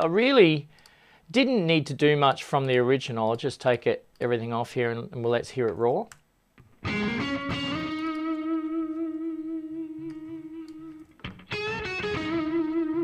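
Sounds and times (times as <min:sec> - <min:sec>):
electric guitar solo with vibrato: 0:06.7 - 0:13.0.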